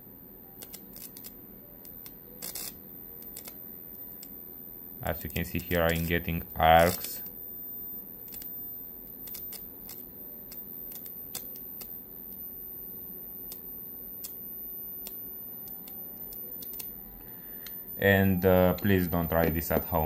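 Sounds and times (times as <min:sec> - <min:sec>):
faint transformer buzz: 0:00.0 - 0:20.0
electric arcs snapping: 0:00.6 - 0:04.4, 0:05.0 - 0:07.4, 0:08.2 - 0:12.2, 0:13.4 - 0:17.0.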